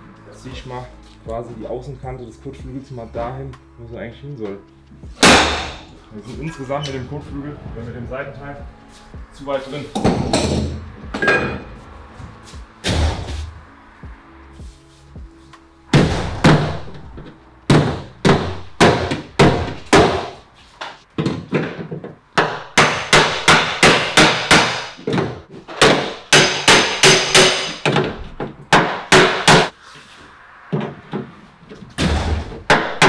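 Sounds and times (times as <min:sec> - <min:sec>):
hammer striking sheet metal: 0:05.2 - 0:05.9, 0:10.0 - 0:11.7, 0:25.8 - 0:27.9, 0:28.8 - 0:29.8.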